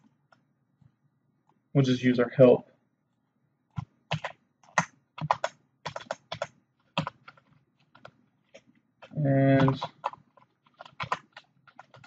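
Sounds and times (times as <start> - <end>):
typing on computer keyboard: 3.8 - 12.0.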